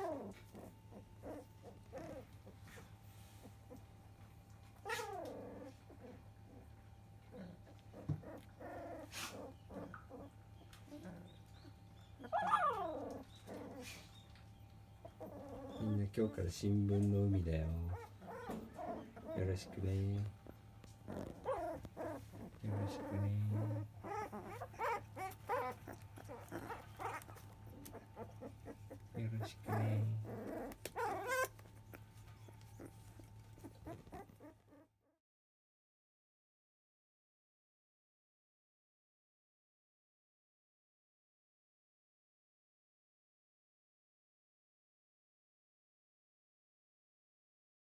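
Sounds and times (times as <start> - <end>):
puppy crying: 0.0 - 3.9, 4.8 - 14.4, 15.0 - 16.4, 17.4 - 34.9
faint rustles: 0.0 - 34.8
puppies whimpering: 0.0 - 34.9.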